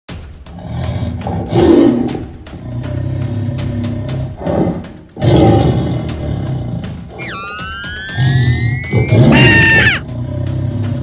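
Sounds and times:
background music: 0.1s - 11.0s
rising whistle-like glide: 7.2s - 9.3s
high-pitched cartoon shriek: 7.2s - 10.0s.

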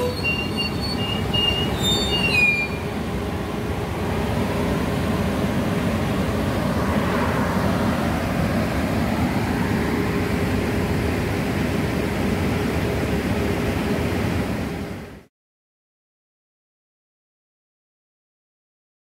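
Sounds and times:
train cars rolling past: 0.0s - 15.2s.

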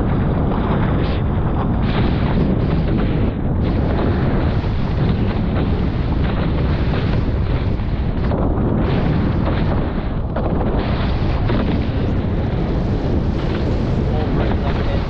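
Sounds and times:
water rushing along hulls: 0.0s - 15.0s
wind buffeting microphone: 0.0s - 15.0s.

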